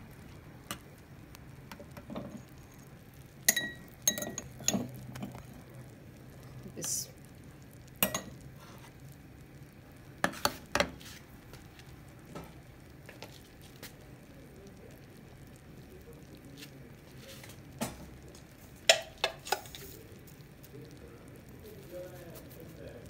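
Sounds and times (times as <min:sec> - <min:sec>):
sauce bubbling and sizzling: 0:00.0 - 0:23.0
metal utensil clinking on pan: 0:03.5 - 0:05.0, 0:08.0 - 0:08.4.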